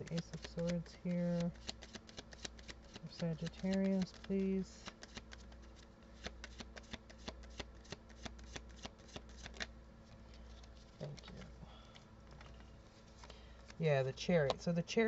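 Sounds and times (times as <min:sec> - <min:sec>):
cards being shuffled: 0:00.0 - 0:11.5.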